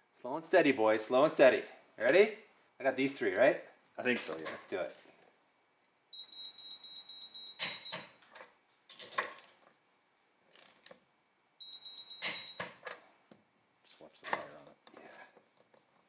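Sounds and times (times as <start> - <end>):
steady high beep: 6.1 - 8.0, 11.6 - 12.7.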